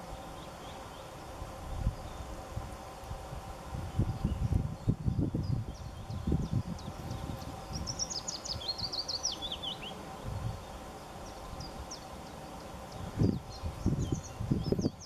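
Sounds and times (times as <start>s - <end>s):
songbird chirping: 3.9s - 15.0s.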